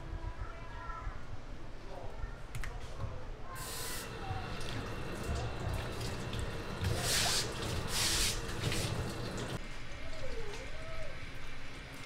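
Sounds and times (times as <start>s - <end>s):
sink spray hose hissing: 3.6s - 9.6s.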